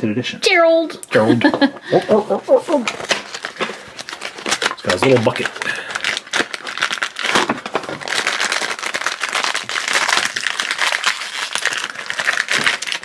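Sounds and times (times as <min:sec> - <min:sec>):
plastic wrapper crinkling and tearing: 0:02.7 - 0:13.0.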